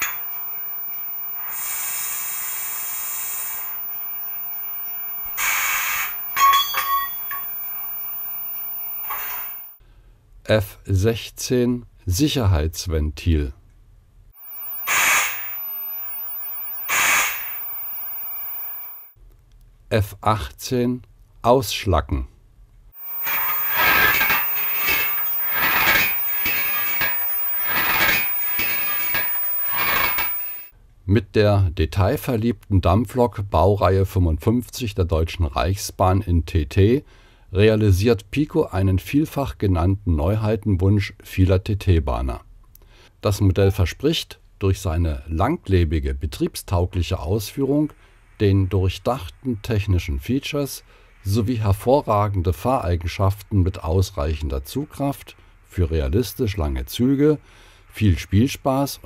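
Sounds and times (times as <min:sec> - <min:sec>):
loud steam hiss: 0:00.0 - 0:09.8, 0:14.4 - 0:19.1, 0:23.0 - 0:30.7
short sharp hiss: 0:00.0 - 0:09.8, 0:14.4 - 0:19.2, 0:23.0 - 0:30.7
steady hiss from small loudspeaker: 0:00.0 - 0:09.8, 0:14.4 - 0:19.1, 0:23.0 - 0:30.7, 0:42.1 - 0:59.0.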